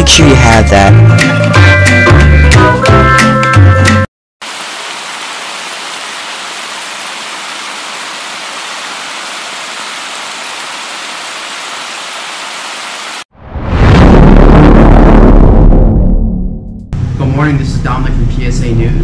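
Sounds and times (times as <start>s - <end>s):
background music: 0.0s - 4.0s
heavy rain hissing: 4.4s - 13.3s.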